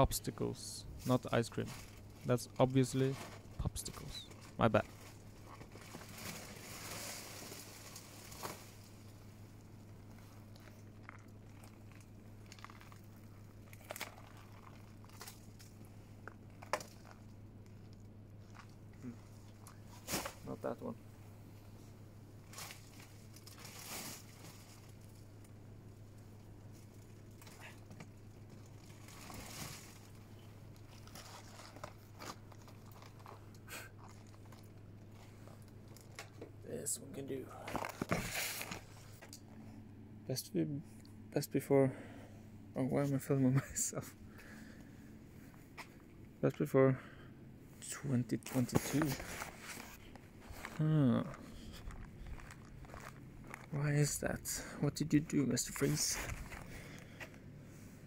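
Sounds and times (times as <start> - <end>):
low steady hum: 0.0 - 58.0
plastic and cardboard rustling: 1.0 - 9.1, 22.5 - 25.3, 26.7 - 36.5, 37.6 - 39.3, 48.3 - 53.8, 55.6 - 57.4
plastic package crinkling: 10.4 - 19.8, 28.5 - 36.4.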